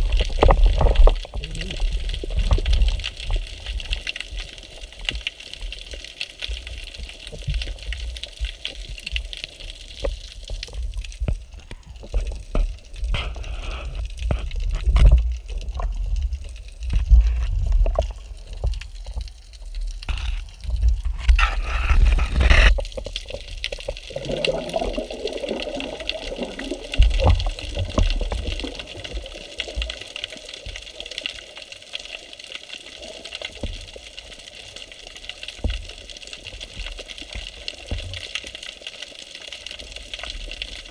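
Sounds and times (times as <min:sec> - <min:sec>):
water sloshing and bubbling: 0:00.0 - 0:40.9
splashing: 0:20.1 - 0:31.8.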